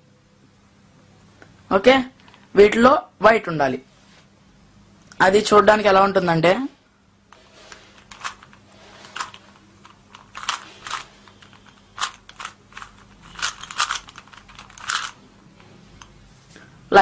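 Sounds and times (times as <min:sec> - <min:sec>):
puzzle cube clicking as turned: 0:08.0 - 0:15.2.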